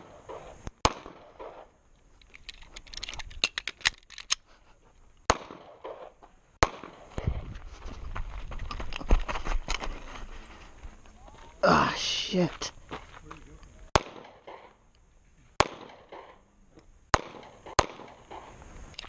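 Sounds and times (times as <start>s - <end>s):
pistol shots: 0.0s - 1.7s, 5.3s - 7.1s, 13.9s - 14.8s, 15.6s - 16.4s, 17.1s - 18.5s.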